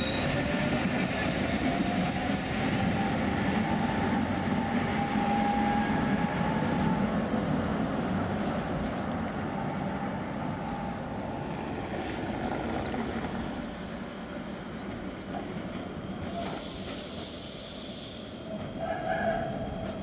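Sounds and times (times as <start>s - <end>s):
trams running on rails: 0.0s - 20.0s
high hiss: 16.2s - 18.5s.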